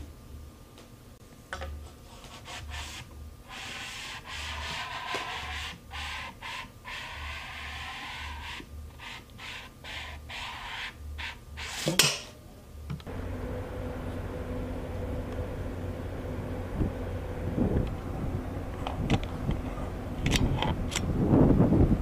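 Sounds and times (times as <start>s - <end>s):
hands scraping and rubbing a tube: 2.1s - 12.1s.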